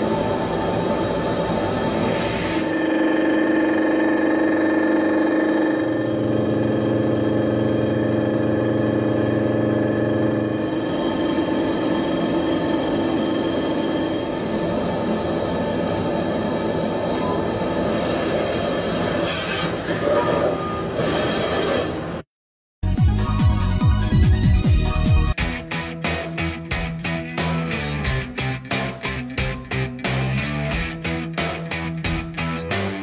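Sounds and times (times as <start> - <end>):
milling machine whine: 0.0 - 21.2.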